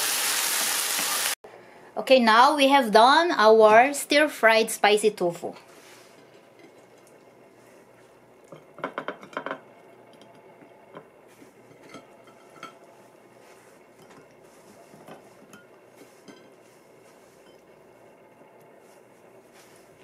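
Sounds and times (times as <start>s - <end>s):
tableware clinking: 8.5s - 9.6s, 11.7s - 12.9s.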